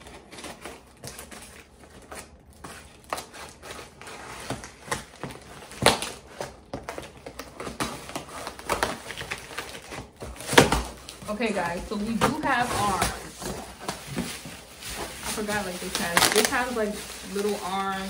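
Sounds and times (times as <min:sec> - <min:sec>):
scissors cutting cardboard: 0:00.0 - 0:11.1
cardboard rustling: 0:00.0 - 0:18.0.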